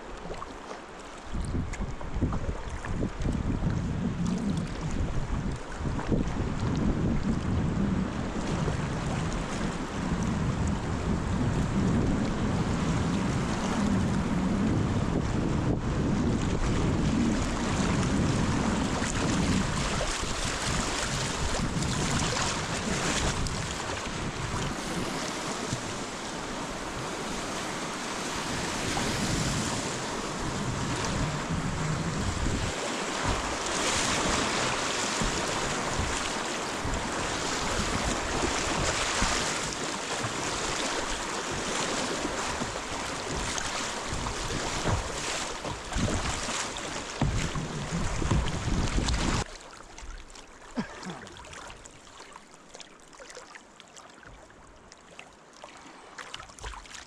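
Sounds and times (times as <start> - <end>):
wind rumbling on microphone: 1.2 - 49.5
river water rushing: 19.0 - 49.5.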